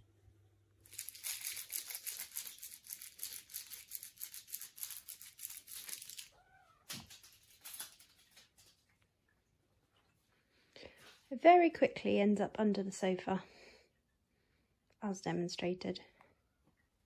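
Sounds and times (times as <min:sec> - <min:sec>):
foil ball crinkling: 0:00.8 - 0:06.3.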